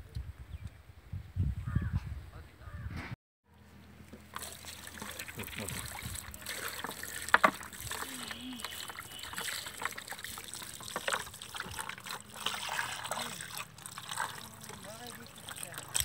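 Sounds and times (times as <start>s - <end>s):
hands rubbing and washing meat: 4.2s - 16.0s
water splashing over chicken: 4.3s - 16.0s.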